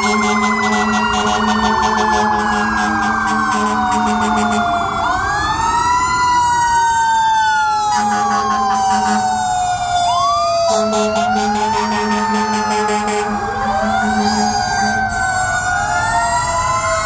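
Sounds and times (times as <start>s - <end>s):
air horn blasts: 0.0s - 4.7s, 7.9s - 9.4s, 10.7s - 15.4s.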